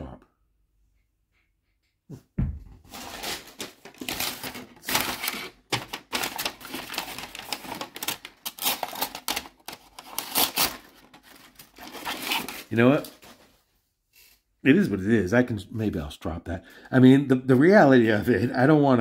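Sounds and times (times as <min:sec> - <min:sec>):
envelope crinkling: 0:02.9 - 0:13.6.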